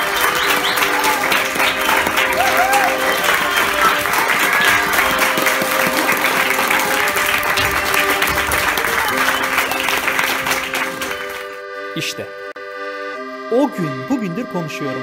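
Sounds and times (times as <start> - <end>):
audience applauding: 0.0 - 11.6
music with held notes: 0.0 - 15.0.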